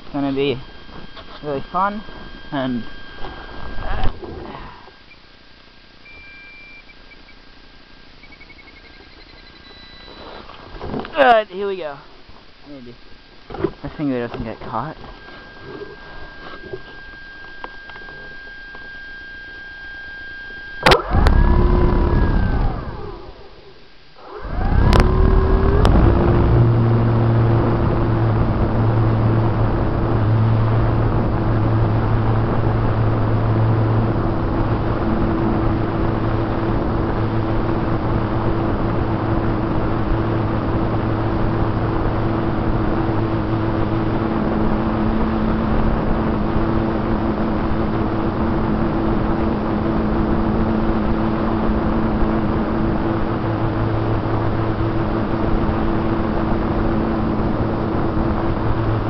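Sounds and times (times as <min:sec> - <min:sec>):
model plane motor and propeller: 0:15.2 - 0:23.6, 0:24.2 - 0:59.0.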